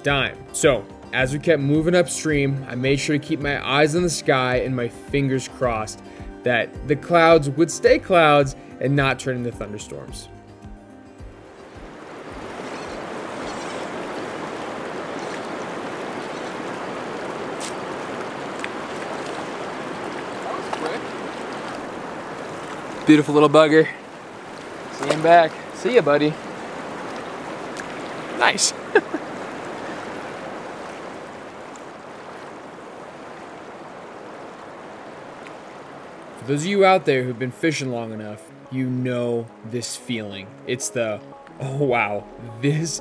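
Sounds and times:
river water rushing over rocks: 0:11.4 - 0:37.0.

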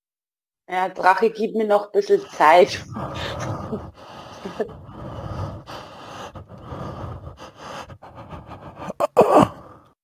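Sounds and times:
falling vocal sound: 0:02.8 - 0:07.3
man breathing heavily: 0:02.8 - 0:10.0.

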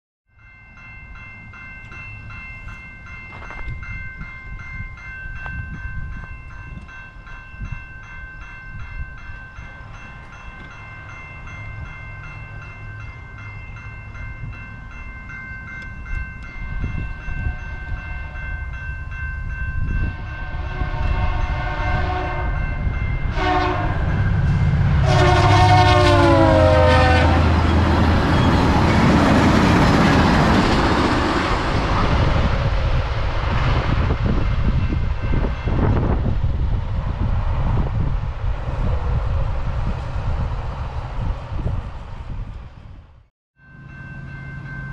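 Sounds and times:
level crossing bell ringing: 0:00.4 - 0:20.3, 0:43.6 - 0:44.9
train rumble and wheel noise: 0:00.4 - 0:44.9
train horn blasts: 0:17.4 - 0:18.5, 0:20.0 - 0:28.5.

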